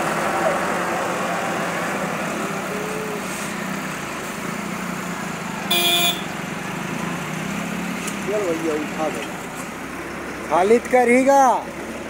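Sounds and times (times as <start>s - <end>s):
vehicle horn honk: 5.7s - 6.3s.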